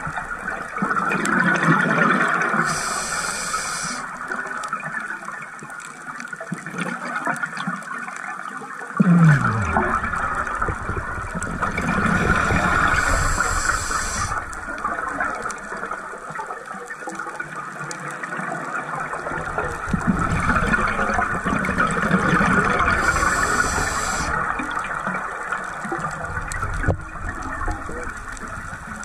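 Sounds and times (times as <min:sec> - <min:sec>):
regulator bubbles gurgling underwater: 0:00.0 - 0:29.0
short high hiss: 0:02.6 - 0:04.0, 0:12.8 - 0:14.4, 0:23.0 - 0:24.4.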